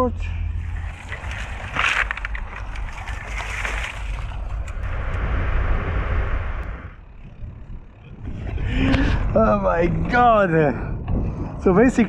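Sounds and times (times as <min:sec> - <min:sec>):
wind buffeting microphone: 0:00.5 - 0:12.0.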